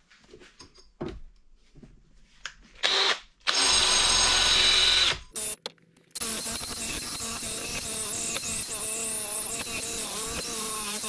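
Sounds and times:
electric drill running in bursts: 2.8 - 5.6, 6.2 - 11.0.

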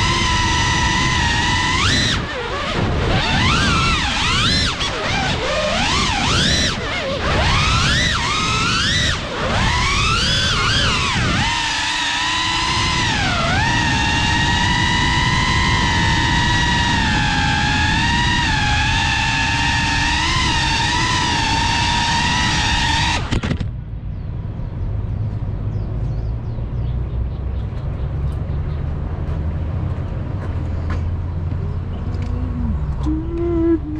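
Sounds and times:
quadcopter motors whining: 0.0 - 23.7, 31.5 - 33.9.

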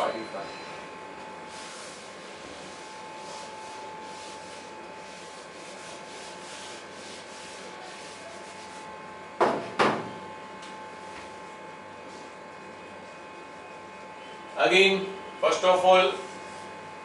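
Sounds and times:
duster wiping whiteboard: 1.4 - 8.9, 16.1 - 16.8.

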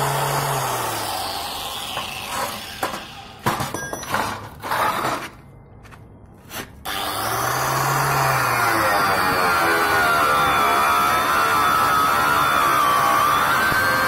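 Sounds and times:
angle grinder running: 0.0 - 3.4, 6.9 - 14.0.

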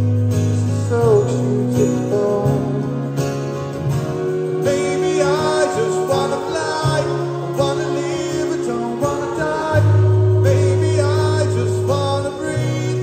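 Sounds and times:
bass line: 0.0 - 13.0
live rock band playing: 0.0 - 13.0
lead melody bending in pitch: 3.7 - 13.0.

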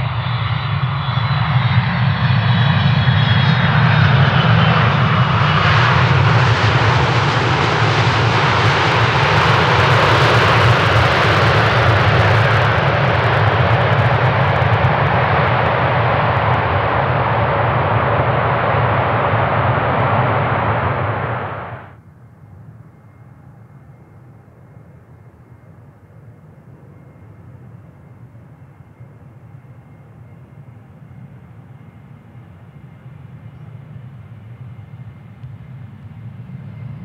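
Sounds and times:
jet engines roaring: 0.0 - 22.0, 26.2 - 37.0
faint high whine: 8.4 - 37.0.

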